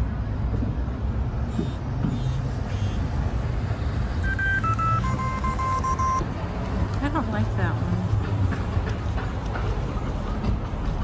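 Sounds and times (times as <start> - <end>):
traffic rumble: 0.0 - 11.0
electronic alert beeps: 4.2 - 6.2.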